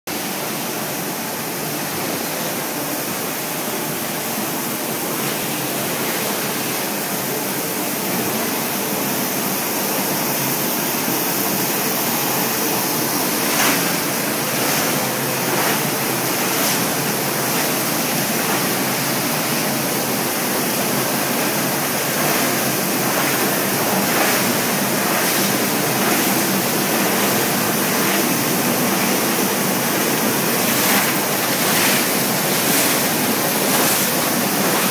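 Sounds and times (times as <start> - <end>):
foam granulator rushing: 11.6 - 34.9.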